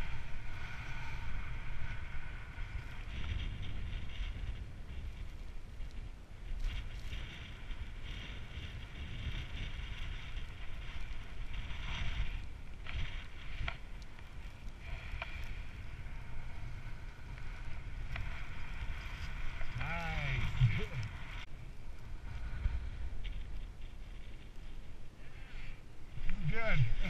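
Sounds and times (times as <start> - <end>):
skis scraping on snow: 0.0 - 21.5
wind buffeting microphone: 0.0 - 27.0.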